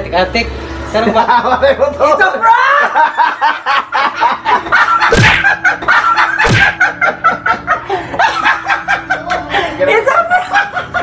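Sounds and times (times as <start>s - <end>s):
people laughing hard: 1.0s - 11.0s
loud smacks: 5.1s - 5.6s, 6.4s - 6.8s.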